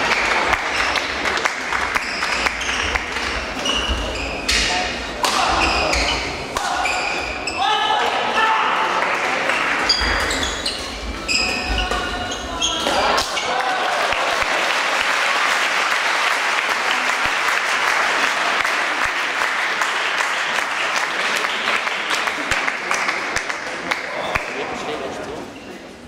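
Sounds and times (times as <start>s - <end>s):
crowd applauding: 0.0s - 3.2s, 13.3s - 24.6s
shoes squeaking on court floor: 2.0s - 4.8s, 5.5s - 7.6s, 9.5s - 13.5s
rackets hitting shuttlecock: 2.7s - 5.9s.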